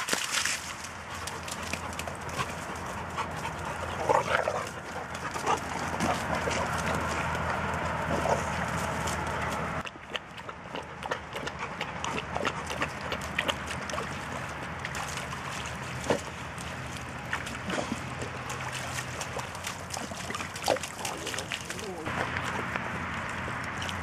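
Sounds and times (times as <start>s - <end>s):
dogs splashing in water: 0.0s - 24.0s
paws slapping in wet mud: 0.0s - 24.0s.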